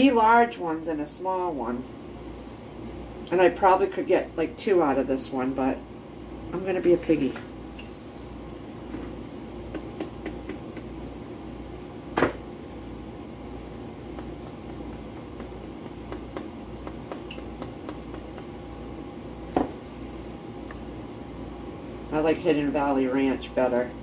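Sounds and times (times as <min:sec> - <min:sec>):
appliance hum: 0:00.0 - 0:24.0
light food-prep clicks: 0:09.7 - 0:10.9.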